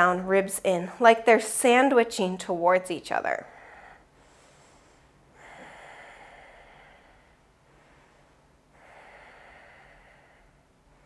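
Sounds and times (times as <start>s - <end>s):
woman breathing softly: 3.4s - 11.0s.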